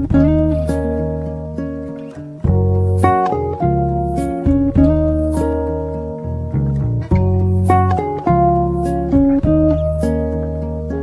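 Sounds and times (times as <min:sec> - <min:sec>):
instrumental guitar music: 0:00.0 - 0:11.0.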